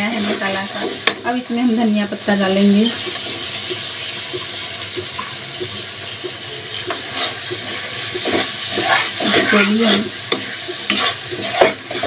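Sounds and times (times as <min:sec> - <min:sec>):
spoon scraping a pan: 0:00.0 - 0:01.4, 0:06.8 - 0:12.0
food sizzling in a pan: 0:00.0 - 0:12.0.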